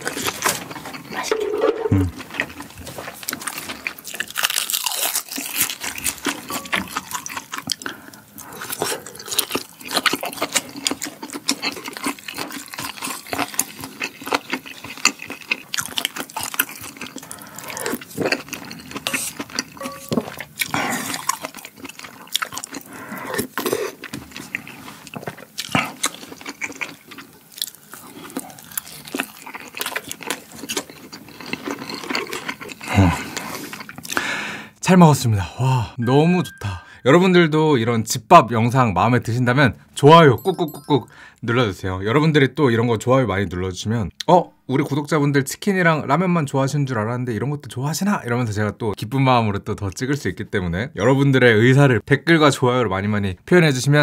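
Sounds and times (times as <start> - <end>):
wet chewing and crunching: 0.0 - 1.4, 2.0 - 34.2.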